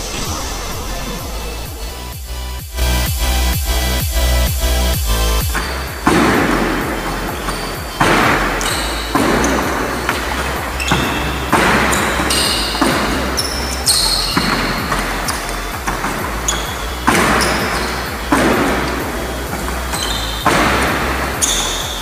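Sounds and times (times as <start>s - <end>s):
sneaker squeaks: 3.6s - 22.0s
footfalls on wooden court: 4.6s - 22.0s
racket hitting shuttlecock: 5.5s - 22.0s.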